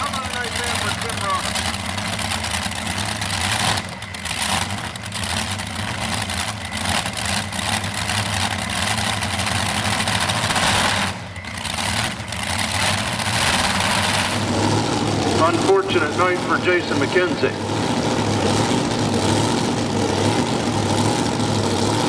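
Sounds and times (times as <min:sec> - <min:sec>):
tractor engines lumpy idle: 0:00.0 - 0:22.0.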